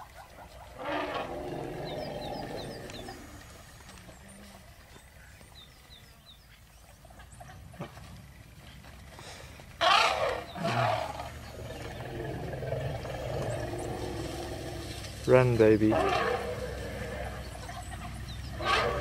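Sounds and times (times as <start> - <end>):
elephant low rumbling call: 0.6 - 4.7, 9.8 - 19.0
elephant trumpeting: 0.7 - 3.2, 9.8 - 11.4, 15.8 - 19.0.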